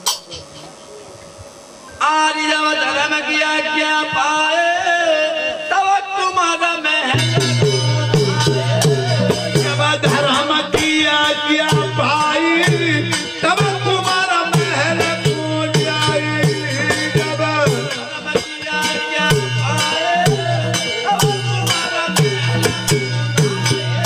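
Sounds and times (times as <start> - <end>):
drum: 0.0 - 0.8, 6.2 - 24.0
men singing: 2.0 - 24.0
hand cymbals: 7.1 - 24.0.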